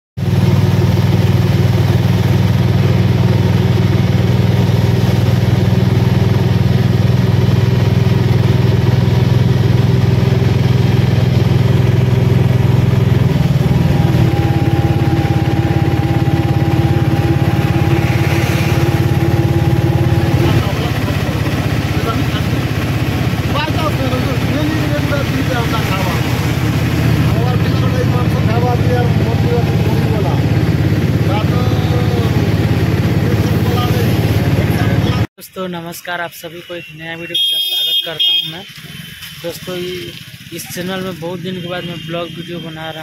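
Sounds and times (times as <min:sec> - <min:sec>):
auto-rickshaw engine running: 0:00.2 - 0:35.3, 0:37.3 - 0:43.0.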